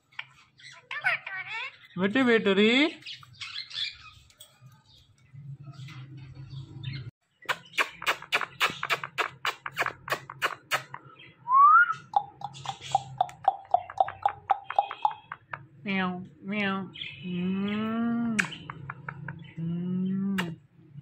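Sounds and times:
parakeet chirping: 0.1 - 4.2, 6.5 - 15.8
kissing smacks: 7.5 - 11.0, 18.4 - 19.2, 20.4 - 20.6.

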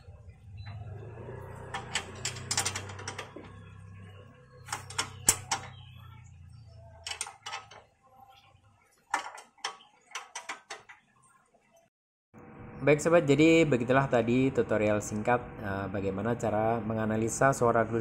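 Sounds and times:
steady low hum: 12.4 - 18.0.

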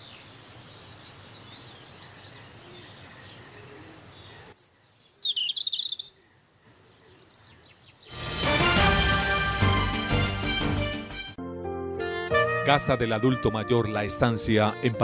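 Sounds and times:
bird warbling song: 0.0 - 8.1
birds chirping and calling: 0.0 - 8.2
outdoor background hiss: 0.0 - 10.8.

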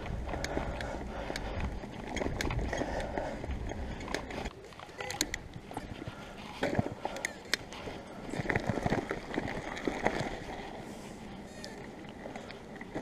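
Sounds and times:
bike rattling and knocking: 0.0 - 10.4
bicycle tyres rolling on tarmac: 0.0 - 13.0.

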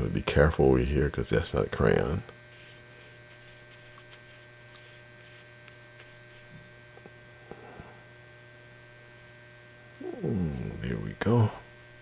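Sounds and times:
electrical mains hum: 0.0 - 12.0
brush dabbing paint on paper: 2.5 - 6.7.

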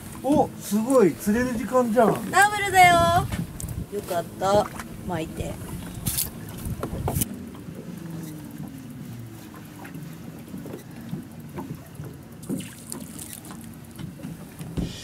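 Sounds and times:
boat machinery humming: 0.0 - 15.0.

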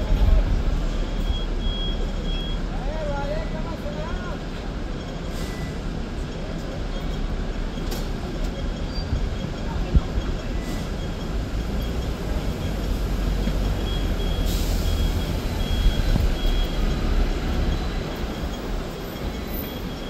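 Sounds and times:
tram rumbling on tracks: 0.0 - 20.0
faint high beeps: 0.9 - 2.8, 8.8 - 20.0.

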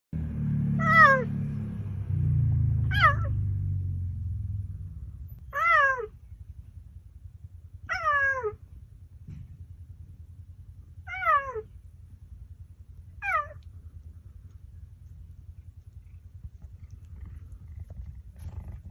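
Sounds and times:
low steady rumble: 0.2 - 18.9.

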